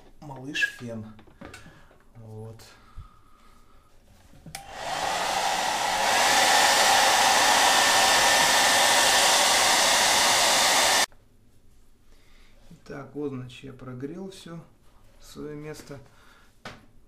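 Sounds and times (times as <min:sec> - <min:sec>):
hair dryer switch click: 0:04.5 - 0:11.0
hair dryer blowing air: 0:04.6 - 0:11.1.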